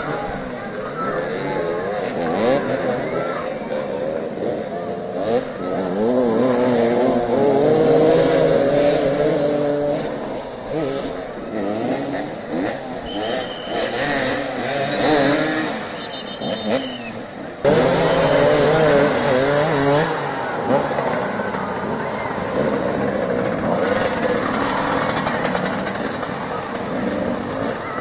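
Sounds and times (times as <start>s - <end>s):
motorcycle engines revving: 0.0s - 28.0s.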